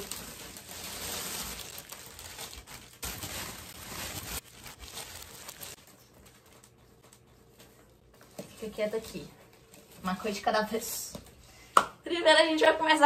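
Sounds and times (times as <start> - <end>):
cellophane crinkling and rustling: 0.0 - 11.4.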